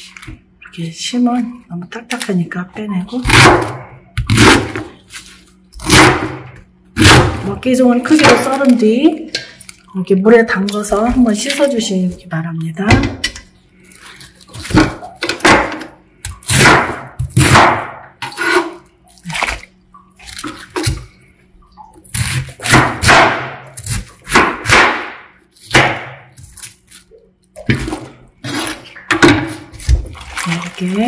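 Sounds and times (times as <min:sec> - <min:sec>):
knife cutting cabbage on board: 0:16.4 - 0:19.6, 0:22.0 - 0:27.1, 0:27.7 - 0:30.0
cabbage splashing into water: 0:29.6 - 0:31.0.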